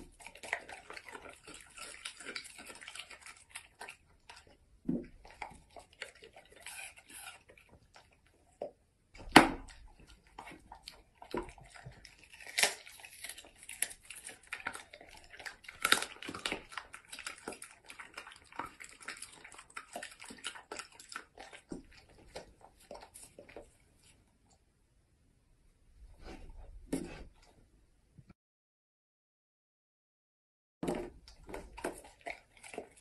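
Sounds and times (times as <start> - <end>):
dog crunching a bone: 0.0 - 23.8, 30.8 - 33.0.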